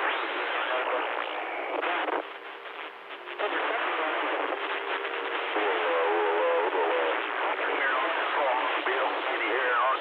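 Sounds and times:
radio static hiss: 0.0s - 10.0s.

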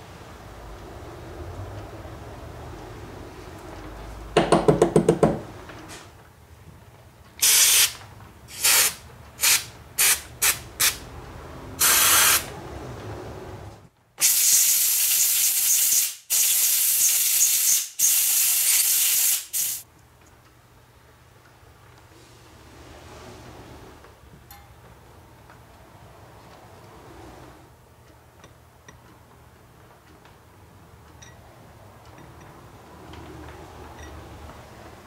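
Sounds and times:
aerosol spray hissing: 7.4s - 11.0s, 11.8s - 12.5s, 14.2s - 19.8s.

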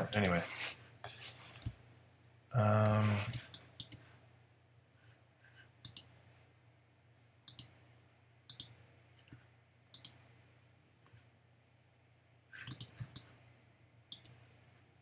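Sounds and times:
computer mouse clicking: 0.0s - 0.4s, 2.8s - 4.0s, 5.8s - 6.1s, 7.5s - 7.8s, 8.5s - 10.2s, 12.6s - 13.3s, 14.1s - 14.4s.

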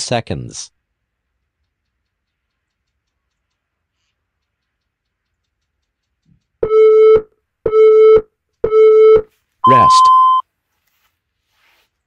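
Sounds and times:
timer beep: 6.6s - 10.4s.

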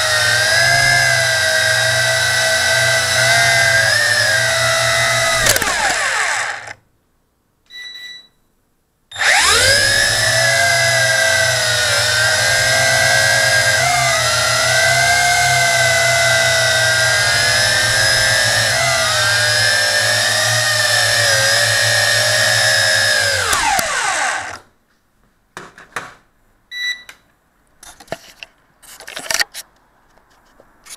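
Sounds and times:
drone motors whining: 0.0s - 6.8s, 9.2s - 24.6s
short beeps: 7.7s - 8.5s.

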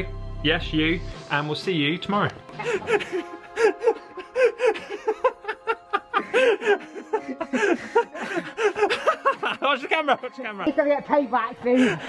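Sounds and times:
background music: 0.0s - 12.0s
person laughing: 2.6s - 9.7s.

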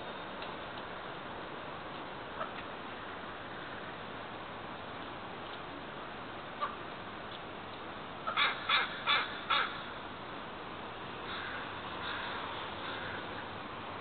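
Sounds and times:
crow cawing: 8.2s - 9.9s, 11.2s - 13.5s.

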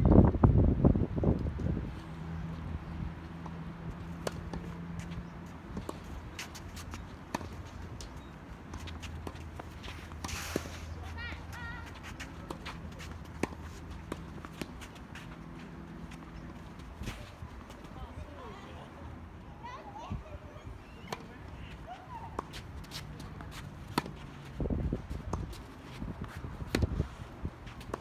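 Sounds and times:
low wind rumble: 0.0s - 5.4s, 24.4s - 27.7s
tennis ball bouncing and racket hits: 3.2s - 18.0s, 21.0s - 28.0s.

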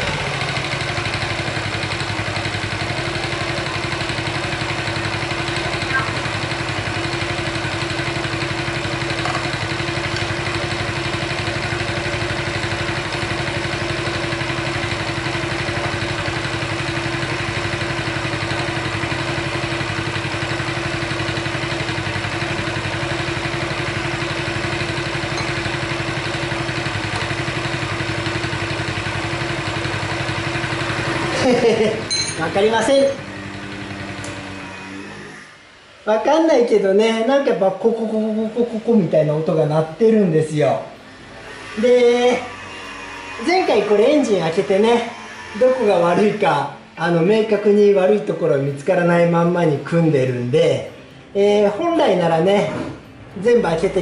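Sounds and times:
engine rattling tick: 0.0s - 23.2s, 24.6s - 30.5s
small engine idling: 0.0s - 35.5s.

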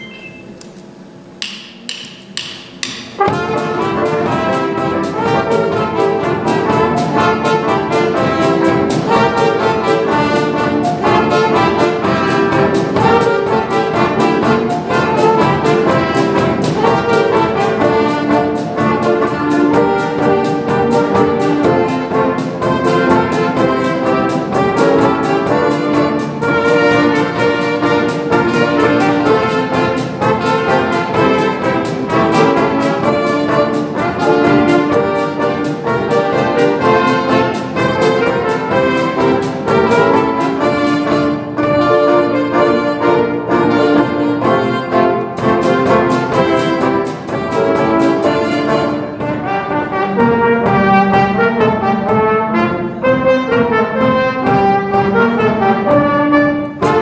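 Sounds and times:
brass music with fast beat: 2.4s - 57.0s.

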